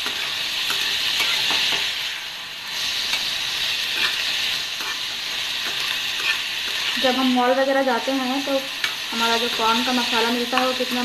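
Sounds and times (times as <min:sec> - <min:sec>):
corn sizzling in oil: 0:00.0 - 0:11.0
spoon scraping a metal pan: 0:03.0 - 0:07.2.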